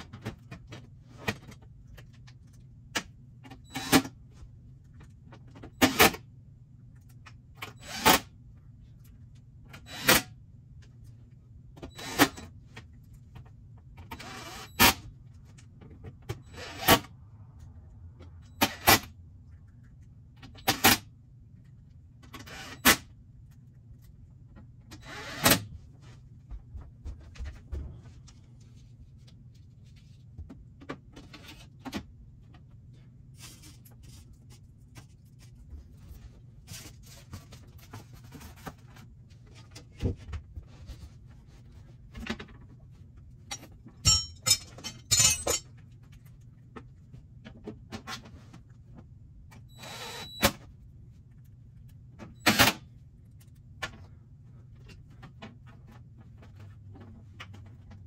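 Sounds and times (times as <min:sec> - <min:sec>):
metallic rattling: 0:44.0 - 0:45.6.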